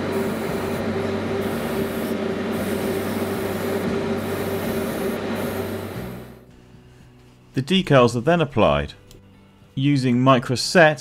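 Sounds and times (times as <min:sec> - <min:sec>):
airbrush spraying hiss: 0:00.0 - 0:06.4
motor hum: 0:00.0 - 0:06.6.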